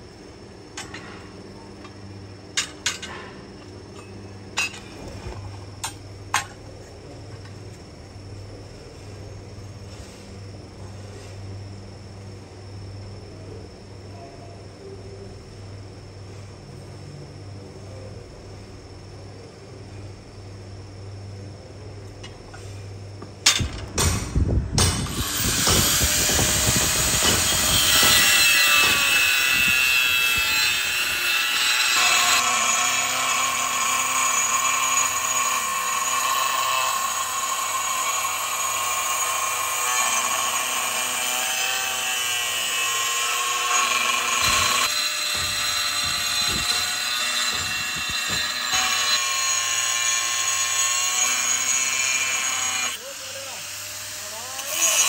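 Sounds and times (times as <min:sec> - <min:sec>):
angle grinder cutting metal: 0:25.0 - 0:55.0
knocks: 0:45.3 - 0:46.8.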